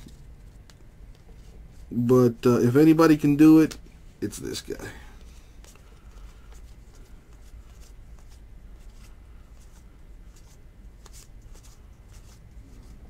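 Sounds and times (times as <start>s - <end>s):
low steady hum: 0.0s - 13.0s
cards clicking and rustling: 5.2s - 13.0s.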